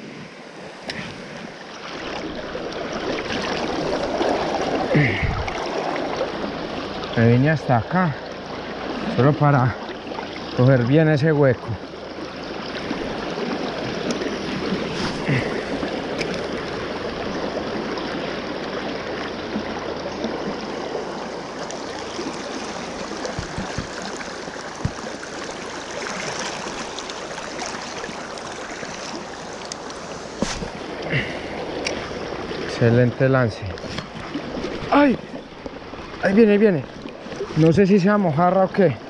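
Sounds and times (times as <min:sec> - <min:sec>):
river current rushing: 0:00.0 - 0:39.0
low knocks: 0:23.2 - 0:24.1.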